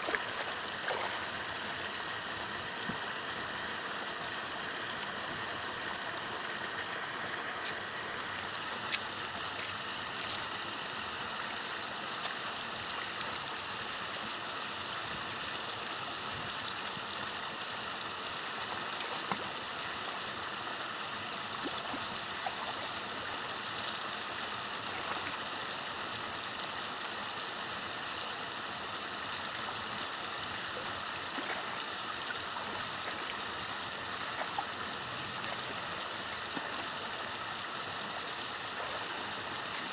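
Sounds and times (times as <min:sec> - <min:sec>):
small water splashes: 0:00.0 - 0:03.1, 0:18.5 - 0:20.4, 0:21.2 - 0:23.8, 0:24.5 - 0:25.7, 0:30.5 - 0:39.9
rushing water: 0:00.0 - 0:39.9.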